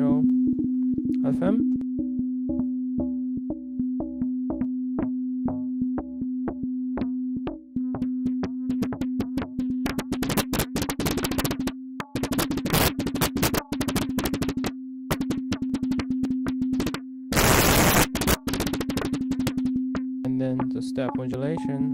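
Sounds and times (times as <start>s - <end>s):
synthesizer pinged clicks: 7.5s - 20.1s.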